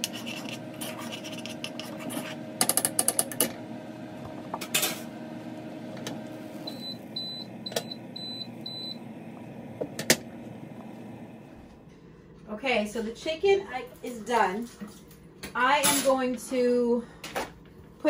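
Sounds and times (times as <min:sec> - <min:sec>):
microwave oven humming: 0:00.0 - 0:13.9.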